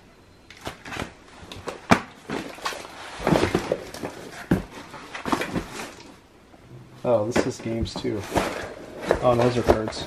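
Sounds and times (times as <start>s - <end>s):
boxes knocking on plastic tote: 3.2s - 5.9s, 7.3s - 10.0s
plastic pages rustling: 7.4s - 10.0s.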